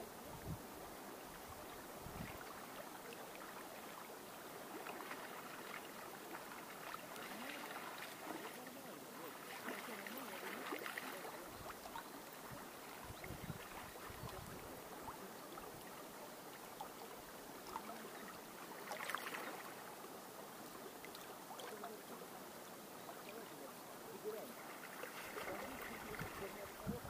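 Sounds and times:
water lapping at riverbank: 0:00.0 - 0:27.0
wind buffeting microphone: 0:00.3 - 0:00.7, 0:01.5 - 0:02.4, 0:13.0 - 0:14.7, 0:25.9 - 0:27.0.

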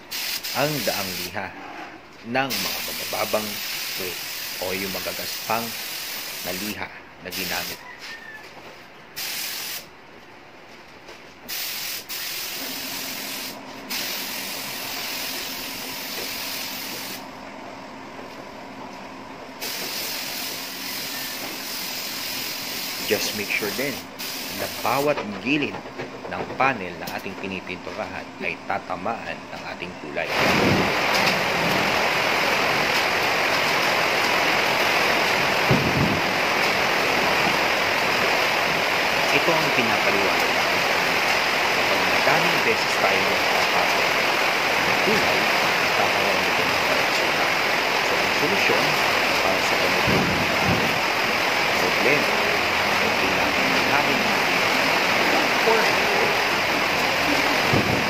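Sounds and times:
spray gun hissing: 0:00.0 - 0:01.3, 0:02.5 - 0:07.8, 0:09.2 - 0:09.9, 0:11.5 - 0:17.2, 0:19.6 - 0:25.1
steady rushing hiss: 0:00.0 - 0:01.4, 0:02.5 - 0:07.8, 0:09.2 - 0:09.9, 0:11.5 - 0:17.3, 0:19.6 - 0:25.5, 0:30.2 - 0:58.0.

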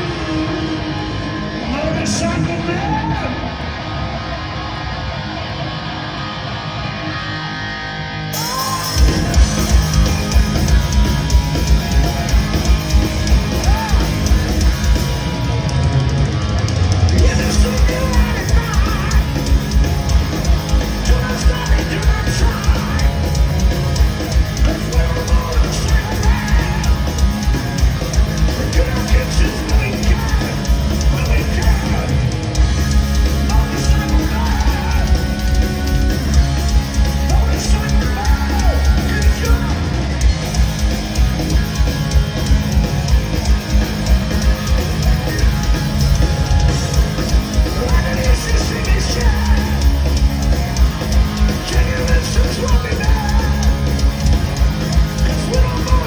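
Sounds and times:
electric guitar riff: 0:00.0 - 0:56.0
heavy metal band playing: 0:00.0 - 0:56.0
person singing: 0:17.2 - 0:19.7, 0:20.9 - 0:23.4, 0:24.6 - 0:27.4, 0:33.4 - 0:40.0, 0:47.6 - 0:50.2, 0:51.4 - 0:54.0, 0:55.1 - 0:56.0.

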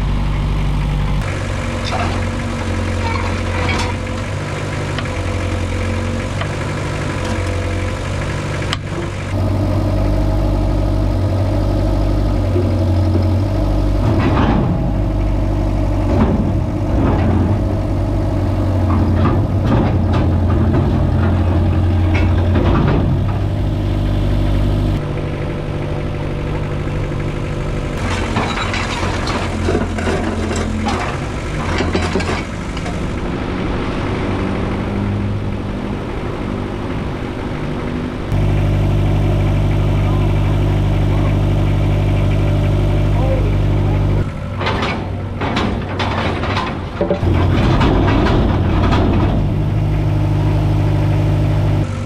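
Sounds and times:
excavator engine running: 0:00.0 - 0:52.0
metal clanks and scrapes: 0:01.2 - 0:04.3, 0:18.7 - 0:23.6, 0:28.0 - 0:33.1, 0:44.6 - 0:49.6.

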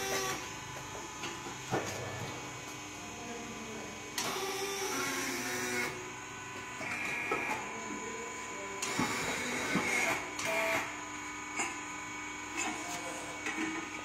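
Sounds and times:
tyre-changing machine motor: 0:00.0 - 0:00.8, 0:04.2 - 0:06.0, 0:08.8 - 0:10.9
steady electric hum: 0:00.0 - 0:14.0.

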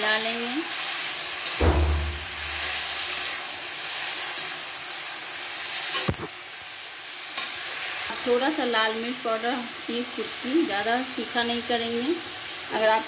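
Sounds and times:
vegetables sizzling in oil: 0:00.0 - 0:13.0
metal spatula scraping: 0:01.5 - 0:03.4
dull low thump: 0:01.6 - 0:02.6
sharp knock: 0:01.6 - 0:02.9.

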